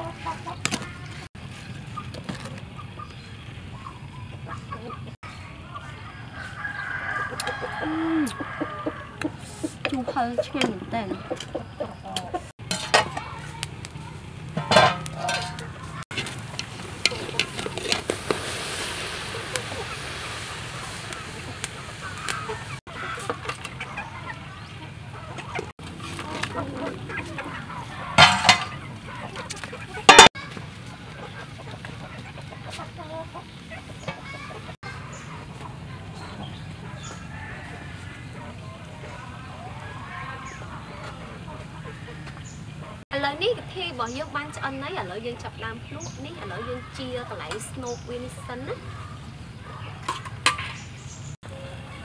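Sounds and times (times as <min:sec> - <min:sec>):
chickens clucking: 0:00.0 - 0:52.0
rooster crowing: 0:06.1 - 0:09.4, 0:37.1 - 0:38.8.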